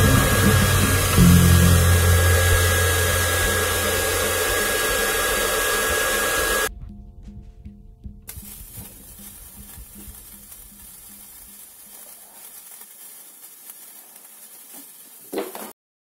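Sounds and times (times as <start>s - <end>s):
sparklers fizzling: 0.0s - 6.7s, 8.3s - 15.8s
low hum: 0.0s - 11.4s.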